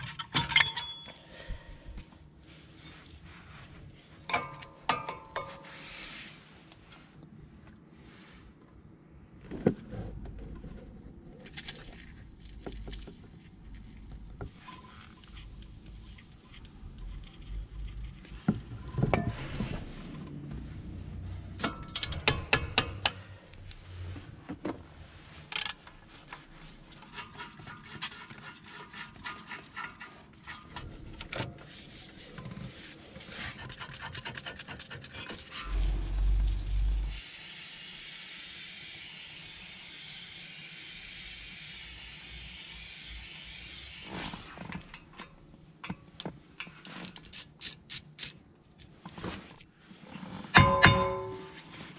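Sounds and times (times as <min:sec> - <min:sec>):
metal tools clinking: 0:00.0 - 0:01.3, 0:50.6 - 0:51.7
brush scraping rusty metal: 0:26.3 - 0:30.8.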